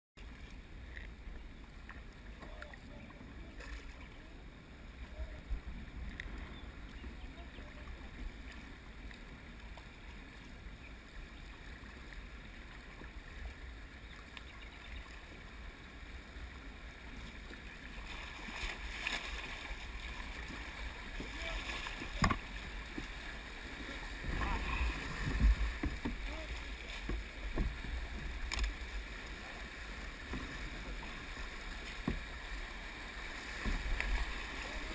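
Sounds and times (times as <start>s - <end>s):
water rushing around a kayak: 0.2s - 34.9s
knocks and splashes: 18.0s - 23.3s, 24.1s - 28.9s, 31.8s - 32.5s, 33.5s - 34.9s.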